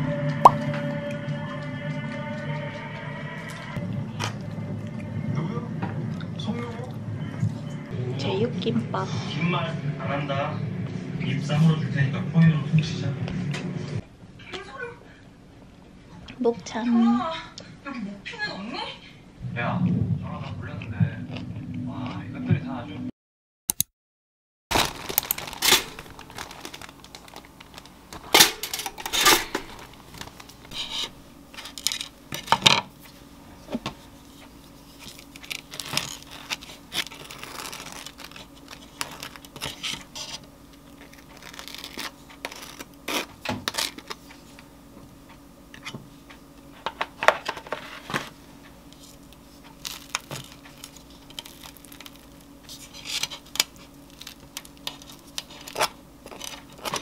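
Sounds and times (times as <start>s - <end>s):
faint steady hum: 0.0s - 13.2s, 24.7s - 57.0s.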